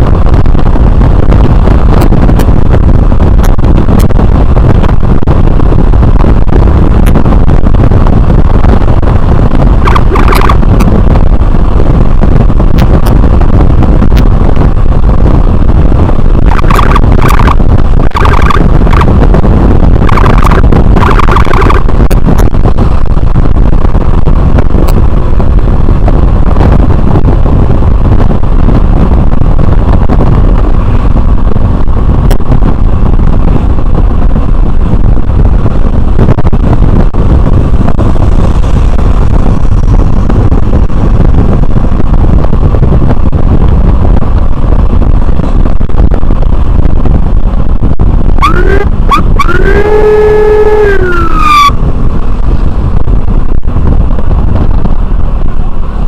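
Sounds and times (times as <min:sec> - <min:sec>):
wind rush and road noise: 0:00.0 - 0:56.0
electronic siren whoops and wail: 0:09.8 - 0:10.6, 0:16.5 - 0:19.2, 0:20.0 - 0:21.9, 0:48.4 - 0:51.8.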